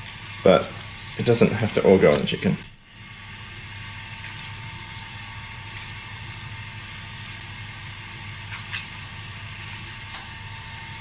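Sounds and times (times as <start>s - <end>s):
lemon squelching: 0.0s - 2.8s
steady background hum: 0.0s - 11.0s.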